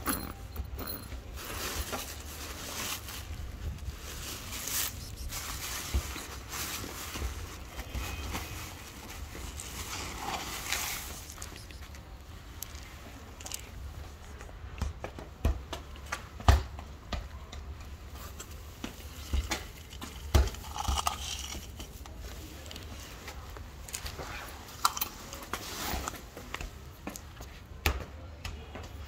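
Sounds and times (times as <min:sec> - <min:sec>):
cat crunching kibble: 0:19.5 - 0:21.7.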